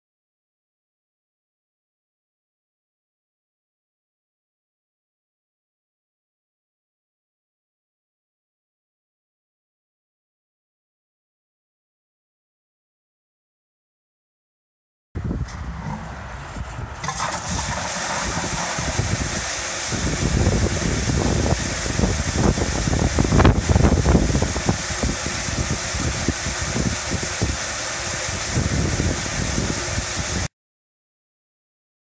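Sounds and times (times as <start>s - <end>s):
water gushing into tank: 15.5s - 30.5s.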